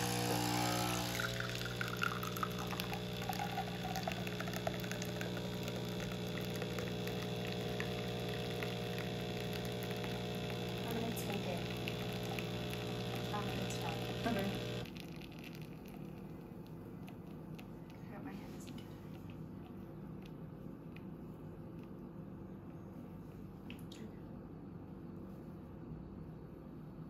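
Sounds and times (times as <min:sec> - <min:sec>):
coffee hissing and sputtering: 0:00.0 - 0:20.4
coffee machine pump hum: 0:00.0 - 0:23.9.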